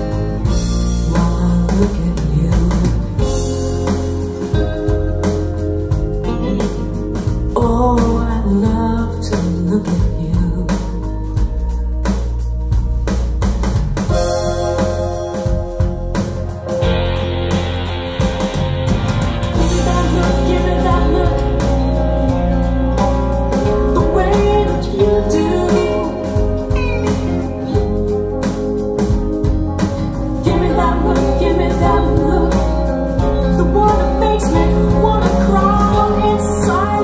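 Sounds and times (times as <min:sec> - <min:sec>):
pop song with woman singing: 0:01.0 - 0:03.6, 0:07.5 - 0:11.6, 0:19.6 - 0:22.7, 0:23.5 - 0:28.0, 0:30.4 - 0:37.0.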